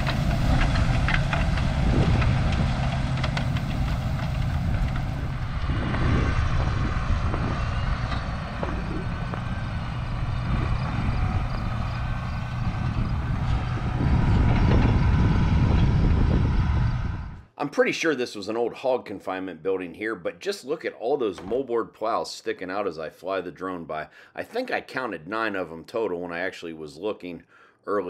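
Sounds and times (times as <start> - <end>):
tractor diesel engine running: 0.0 - 17.4.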